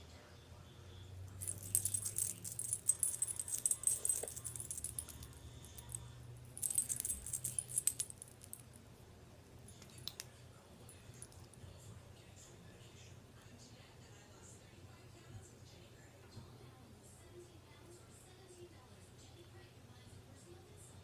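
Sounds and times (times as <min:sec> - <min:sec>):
light metallic jingling: 0:01.3 - 0:08.8.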